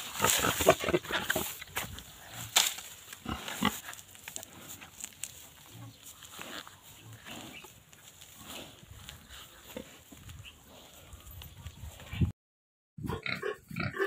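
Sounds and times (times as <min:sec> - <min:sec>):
boar grunting: 0:00.0 - 0:02.6, 0:13.0 - 0:14.0.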